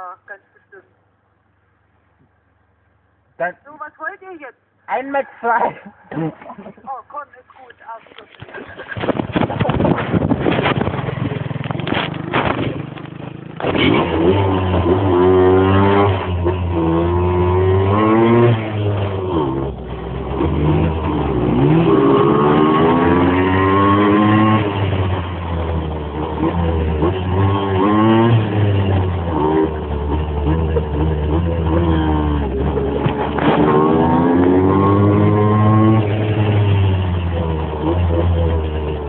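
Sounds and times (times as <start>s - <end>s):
motorbike engine revving: 8.4s - 39.0s.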